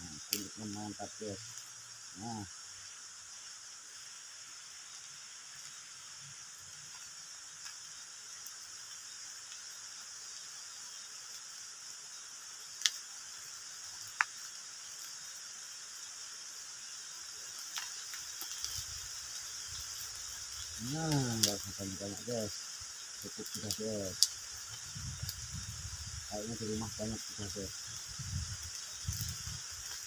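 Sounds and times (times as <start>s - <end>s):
insects droning: 0.0s - 30.0s
sharp snaps: 12.8s - 13.0s, 20.8s - 21.7s.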